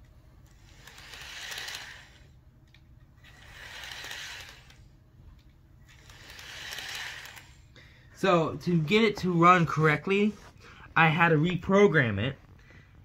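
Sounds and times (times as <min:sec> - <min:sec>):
model locomotive motor whir: 0:00.4 - 0:07.7.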